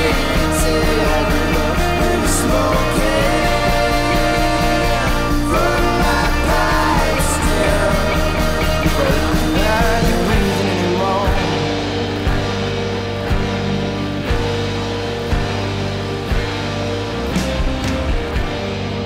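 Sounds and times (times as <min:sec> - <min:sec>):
rock song with singing: 0:00.0 - 0:19.0.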